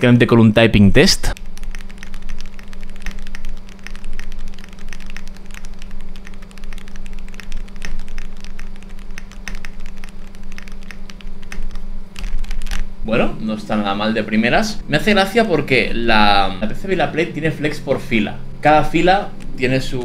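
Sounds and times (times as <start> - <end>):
low hum: 0.0 - 20.0
mechanical keyboard typing: 1.3 - 12.8.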